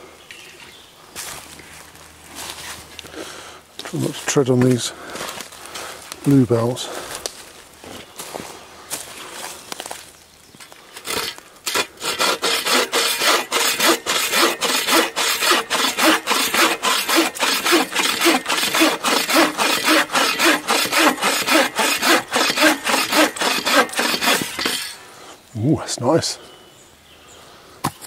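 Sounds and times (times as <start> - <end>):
bow saw cutting branch: 11.0 - 25.1.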